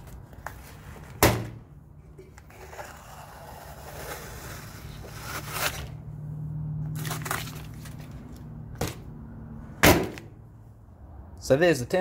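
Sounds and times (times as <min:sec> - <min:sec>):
tape tearing: 0:02.6 - 0:06.0, 0:06.9 - 0:08.4.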